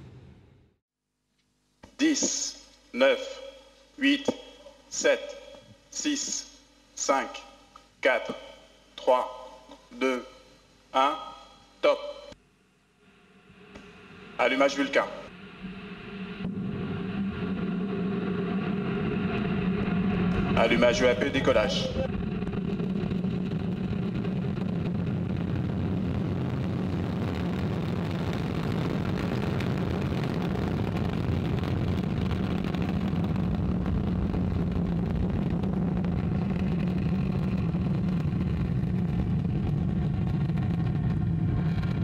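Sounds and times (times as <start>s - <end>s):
rocket engine rumble: 13.1s - 42.0s.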